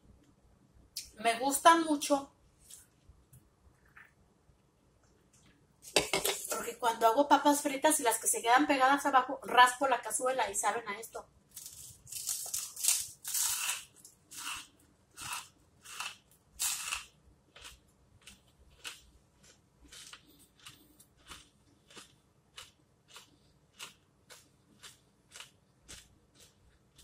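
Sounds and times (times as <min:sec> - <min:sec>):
potato chips being chewed: 0:11.5 - 0:27.0.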